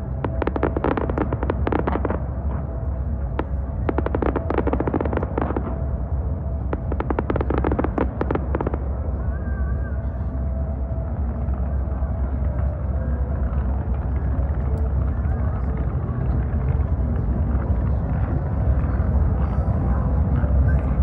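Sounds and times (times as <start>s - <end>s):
low rumble: 0.0s - 21.0s
fireworks crackling: 0.1s - 9.1s.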